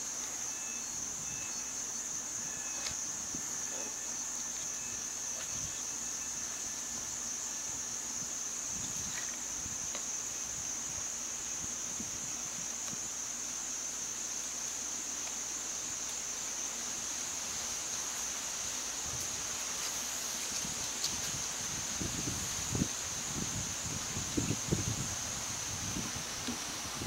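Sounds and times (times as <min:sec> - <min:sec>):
insect chorus drone: 0:00.0 - 0:27.0.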